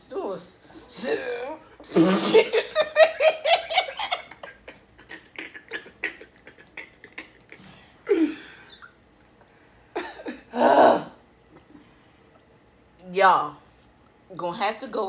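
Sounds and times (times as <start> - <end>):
woman and man laughing: 2.2 - 7.6.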